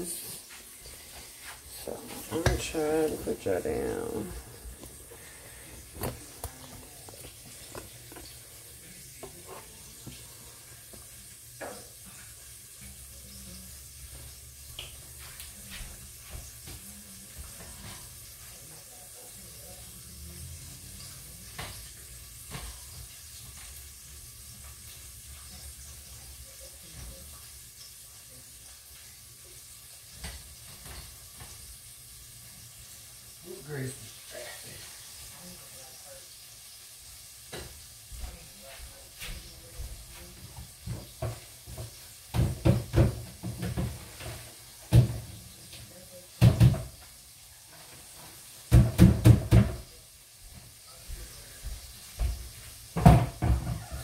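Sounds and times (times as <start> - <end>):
grease sizzling: 0.0 - 54.0.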